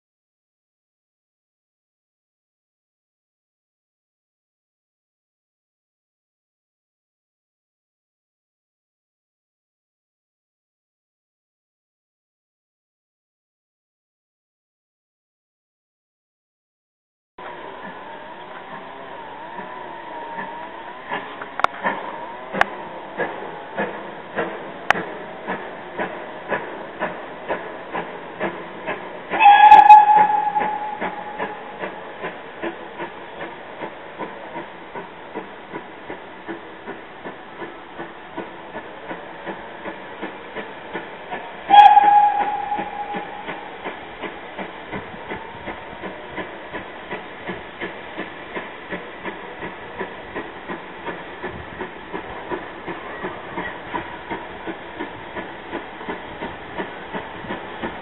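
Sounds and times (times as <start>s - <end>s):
steam engine chuffing beat: 20.4s - 58.0s
steam locomotive whistle blasts: 29.4s - 32.0s, 41.7s - 44.0s.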